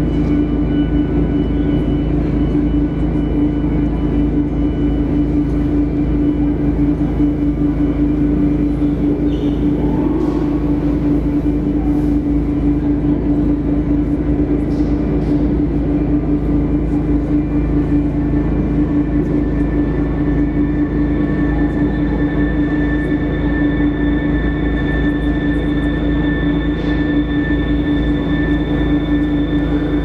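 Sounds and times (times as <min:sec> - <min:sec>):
electronic drone with low tone: 0:00.0 - 0:30.0.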